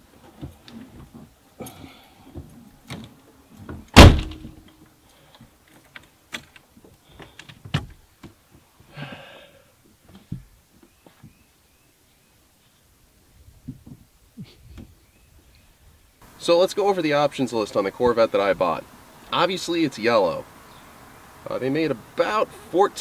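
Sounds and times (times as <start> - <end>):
car door shutting: 4.0 - 4.6
clicks knocks and rustling: 5.7 - 8.4.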